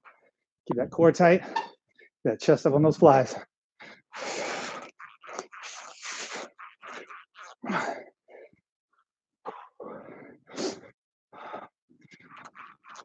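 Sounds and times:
person breathing hard: 0:03.8 - 0:04.9, 0:09.5 - 0:12.2.

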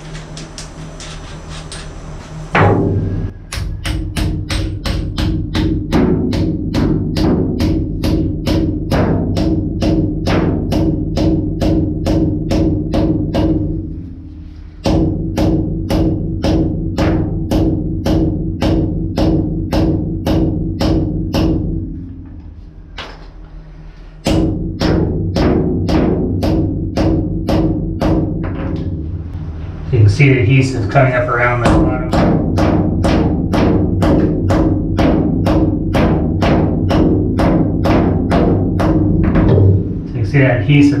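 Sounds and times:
hammer striking steel bolts: 0:02.6 - 0:08.7.

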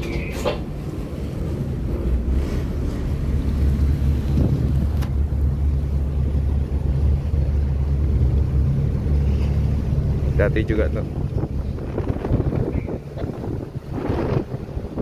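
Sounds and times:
diesel engine rumble: 0:00.0 - 0:15.0
wind buffeting microphone: 0:00.0 - 0:15.0.

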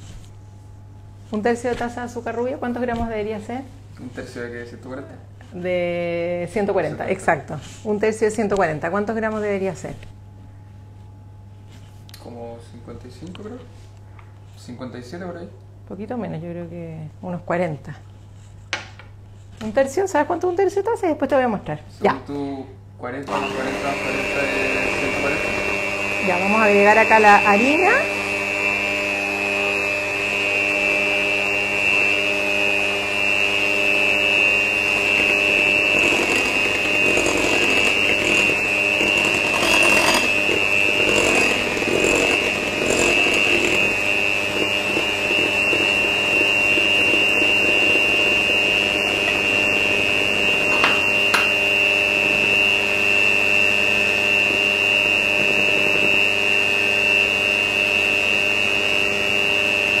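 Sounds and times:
beaters churning batter: 0:23.3 - 1:00.0
electric hand mixer whining: 0:23.3 - 1:00.0.

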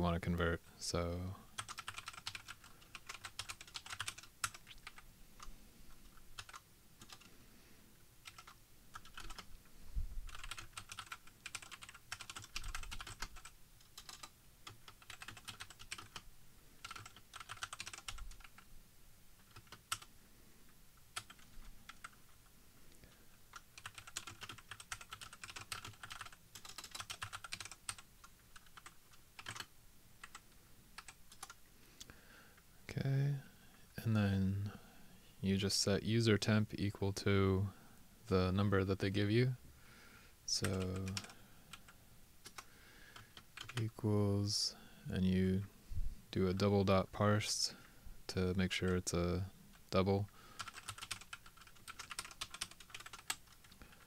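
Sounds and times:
typing on computer keyboard: 0:01.6 - 0:05.0, 0:06.4 - 0:07.3, 0:08.2 - 0:09.5, 0:10.3 - 0:16.2, 0:16.8 - 0:18.6, 0:19.4 - 0:20.1, 0:21.2 - 0:22.2, 0:23.5 - 0:30.4, 0:31.0 - 0:31.6, 0:40.6 - 0:41.8, 0:42.4 - 0:43.8, 0:50.6 - 0:54.0.

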